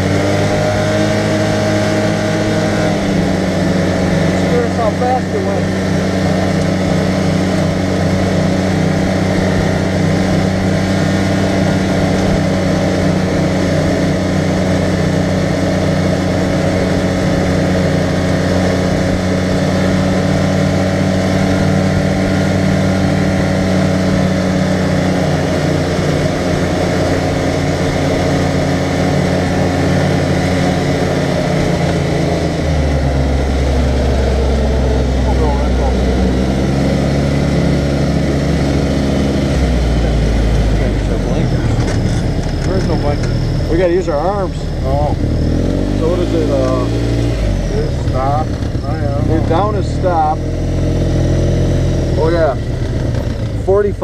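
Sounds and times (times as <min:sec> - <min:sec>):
vehicle engine running: 0:00.0 - 0:54.0
wind and road noise: 0:00.0 - 0:54.0.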